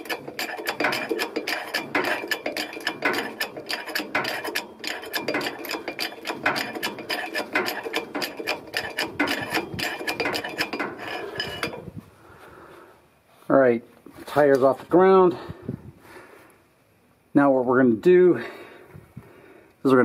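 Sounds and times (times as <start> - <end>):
jack handle clicking and clinking: 0.0 - 12.0.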